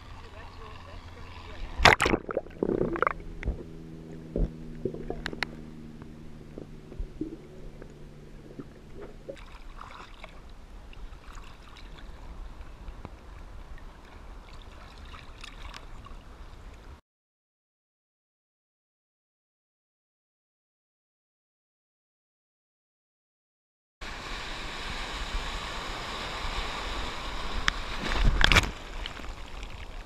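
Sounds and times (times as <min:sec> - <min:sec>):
constant low rumble: 0:00.0 - 0:17.0, 0:24.0 - 0:30.0
low multi-tone hum: 0:00.0 - 0:17.0
water lapping and splashing: 0:00.0 - 0:17.0, 0:24.1 - 0:30.0.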